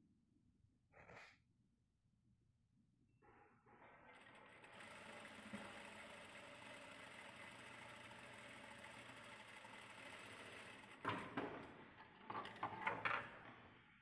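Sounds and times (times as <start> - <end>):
sewing machine stitching: 3.8 - 13.2.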